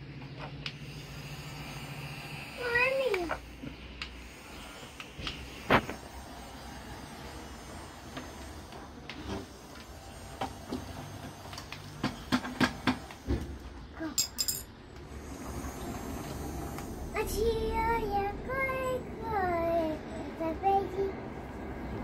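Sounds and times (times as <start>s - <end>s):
child singing: 17.2s - 21.2s.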